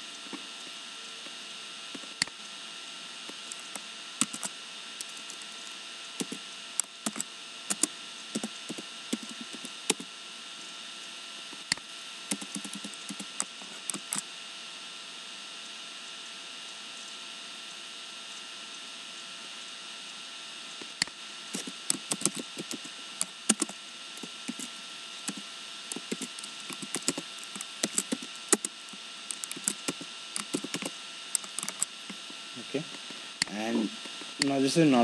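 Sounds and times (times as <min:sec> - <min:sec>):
faint hum: 0:00.0 - 0:35.0
steady hiss: 0:20.8 - 0:35.0.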